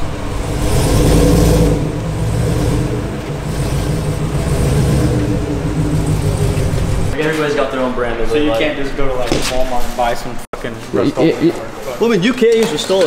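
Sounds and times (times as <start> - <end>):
pickup truck engine running: 0.0 - 7.2.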